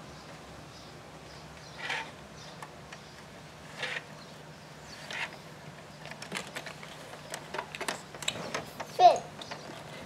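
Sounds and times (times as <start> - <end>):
scraping rustles: 1.6 - 2.2.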